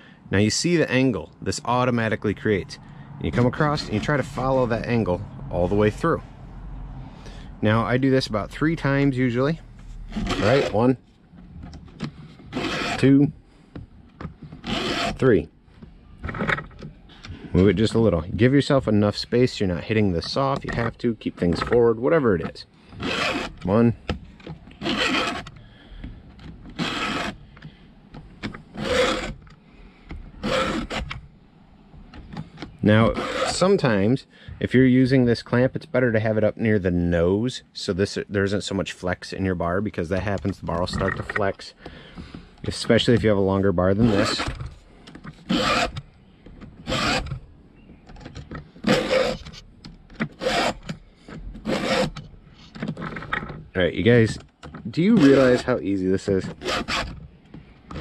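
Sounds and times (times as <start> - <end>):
file rasping on chain: 10.1 - 10.8, 12.5 - 13.1, 14.6 - 15.2, 23.0 - 23.6, 24.8 - 25.5, 26.8 - 27.4, 28.8 - 29.4, 30.4 - 31.1, 33.0 - 33.6, 44.0 - 44.5, 45.4 - 46.0, 46.8 - 47.3, 48.8 - 49.5, 50.4 - 50.8, 51.6 - 52.2, 55.2 - 55.7, 56.5 - 57.2.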